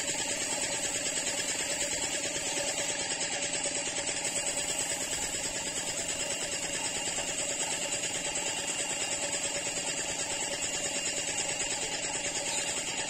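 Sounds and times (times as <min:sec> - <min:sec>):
motor running with fast pulse: 0:00.0 - 0:13.0
paint spray gun hissing: 0:00.0 - 0:13.0.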